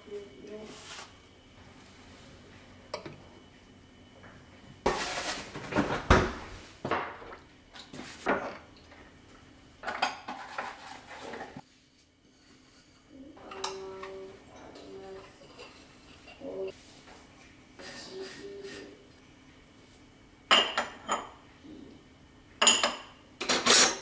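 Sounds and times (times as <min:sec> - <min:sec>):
ceramic dishes clinking: 0:20.5 - 0:21.4, 0:22.6 - 0:23.8.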